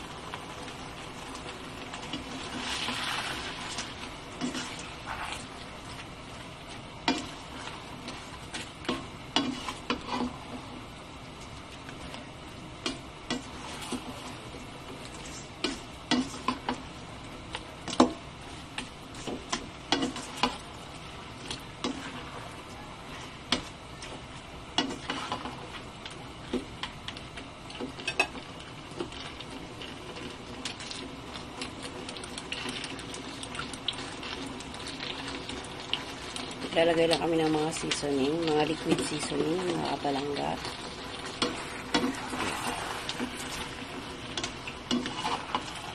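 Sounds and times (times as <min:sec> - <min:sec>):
food sizzling: 0:00.0 - 0:45.9
spatula scraping a wok: 0:01.9 - 0:05.9, 0:08.9 - 0:10.6, 0:19.2 - 0:20.6, 0:40.8 - 0:45.9.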